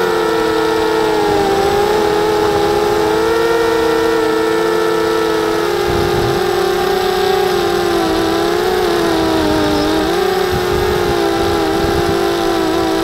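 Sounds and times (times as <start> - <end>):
quadcopter motors whining: 0.0 - 13.0.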